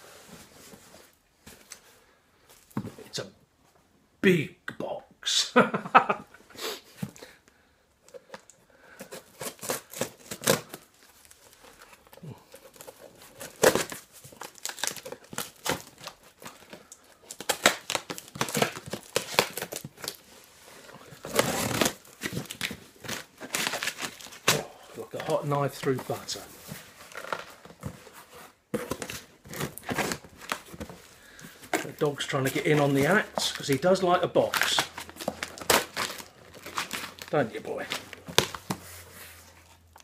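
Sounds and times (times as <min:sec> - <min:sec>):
tape and cardboard tearing: 0:09.1 - 0:11.4, 0:12.7 - 0:20.3, 0:21.1 - 0:24.6, 0:32.6 - 0:37.3, 0:37.9 - 0:39.0.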